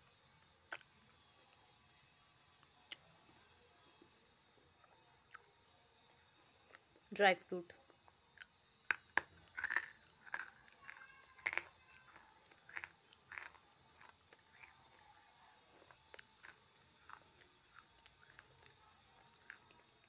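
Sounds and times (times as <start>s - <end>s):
chewing crunching: 7.9s - 20.0s.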